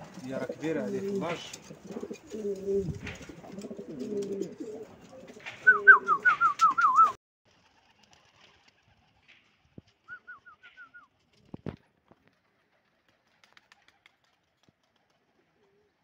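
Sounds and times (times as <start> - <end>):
pigeons cooing: 0.0 - 7.0.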